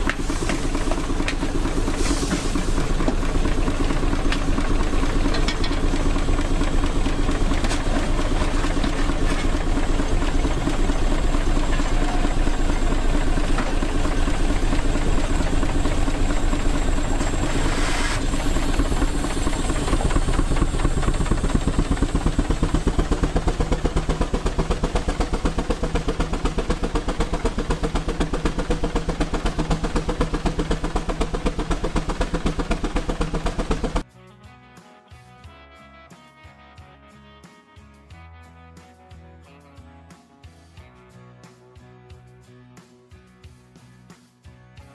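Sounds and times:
steam hissing: 0:00.0 - 0:04.6, 0:09.9 - 0:34.0
steam engine exhaust chuffing: 0:00.0 - 0:34.1.

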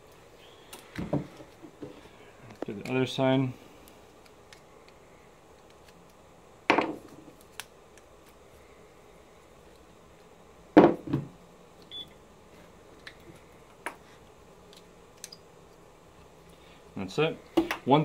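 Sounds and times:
knocks on wooden workbench: 0:10.8 - 0:11.3.

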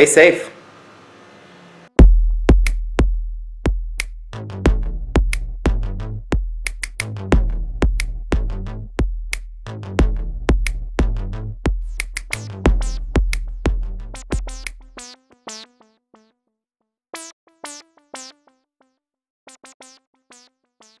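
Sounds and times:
deep bass: 0:02.0 - 0:15.0
drum-machine beat: 0:02.0 - 0:15.1
synthesizer notes: 0:04.3 - 0:06.3, 0:07.0 - 0:09.0, 0:09.7 - 0:15.6.

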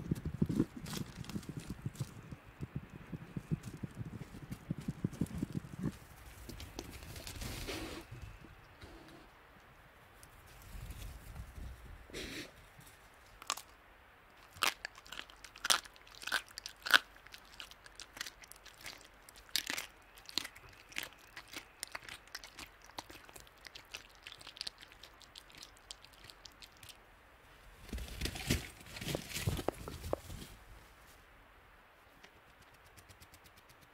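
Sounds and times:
jaws crunching on bone: 0:13.4 - 0:13.7, 0:14.4 - 0:27.0.

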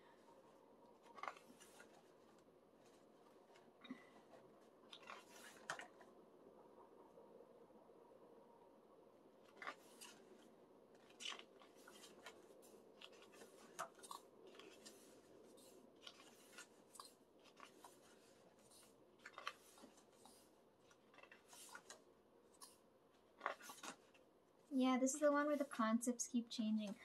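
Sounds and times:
photo book pages turning: 0:00.1 - 0:06.1, 0:09.4 - 0:24.7.

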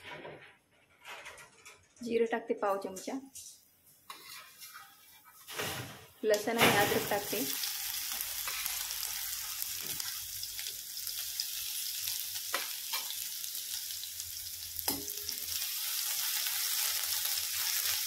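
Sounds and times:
spices sizzling in hot oil: 0:03.9 - 0:18.0.

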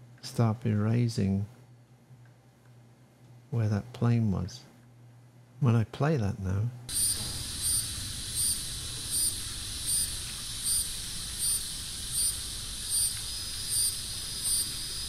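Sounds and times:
insect chirping: 0:06.9 - 0:15.0.

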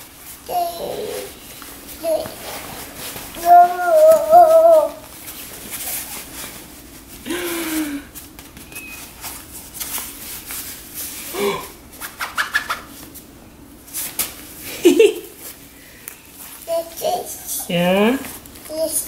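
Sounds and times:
child wordless voice sounds: 0:00.5 - 0:01.4, 0:03.4 - 0:05.0, 0:16.7 - 0:17.8, 0:18.7 - 0:19.0.

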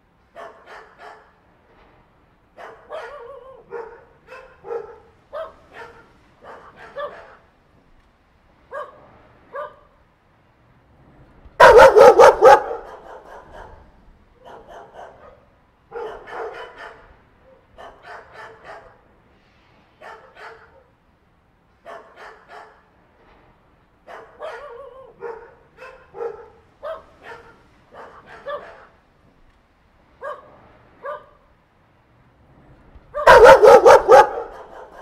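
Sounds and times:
dogs barking: 0:00.3 - 0:01.4, 0:02.6 - 0:07.5, 0:08.7 - 0:09.9, 0:11.6 - 0:19.1, 0:20.0 - 0:20.9, 0:21.8 - 0:22.9, 0:24.0 - 0:29.0, 0:30.2 - 0:31.4, 0:33.1 - 0:35.0.

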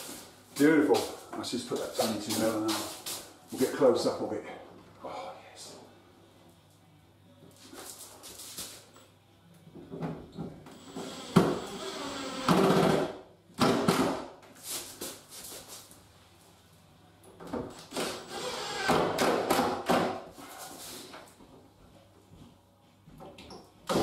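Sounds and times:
drill driving screws: 0:10.7 - 0:13.0, 0:17.9 - 0:19.0.

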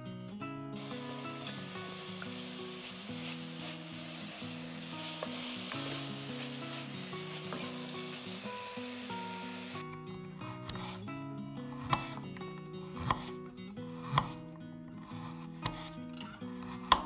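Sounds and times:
soft background music: 0:00.5 - 0:17.0
onion sizzling in oil: 0:00.8 - 0:09.8.

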